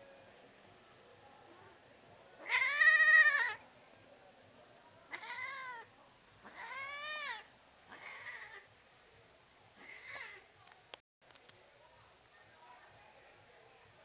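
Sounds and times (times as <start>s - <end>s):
cat meowing: 2.4s - 3.6s, 5.1s - 8.6s.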